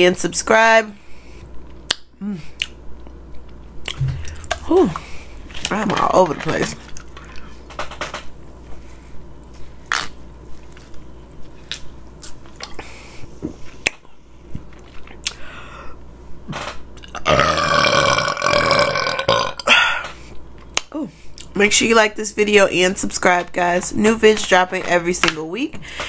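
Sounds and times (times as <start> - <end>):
woman burping: 17.2 - 20.0.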